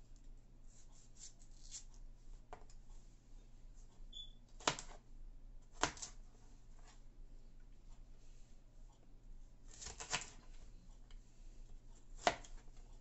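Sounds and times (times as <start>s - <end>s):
knife cutting pepper: 1.2s - 1.9s, 9.7s - 10.4s, 12.2s - 12.6s.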